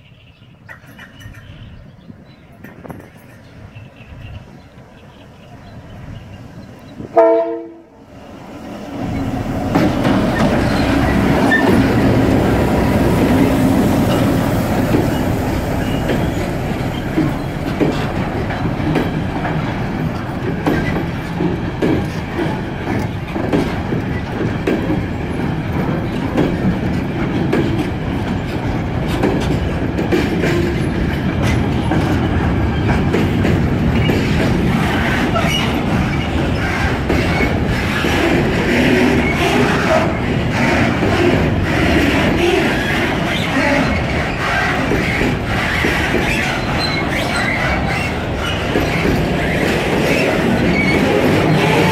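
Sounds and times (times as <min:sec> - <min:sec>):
train wheels rumbling on rail: 0:00.0 - 0:51.9
locomotive horn blast: 0:07.2 - 0:08.1.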